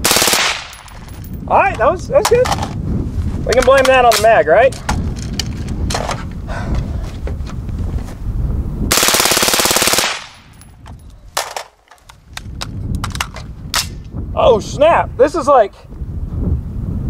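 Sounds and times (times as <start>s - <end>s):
suppressed rifle automatic burst: 0.0s - 0.9s, 8.9s - 10.5s.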